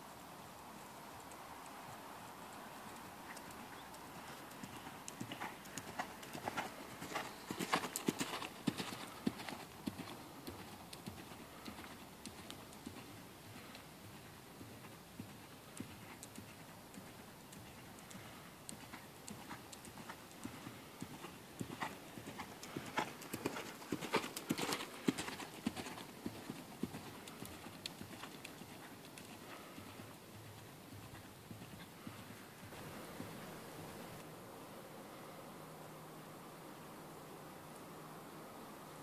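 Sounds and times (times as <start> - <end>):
horse hoofbeats on sand: 3.0 - 33.4.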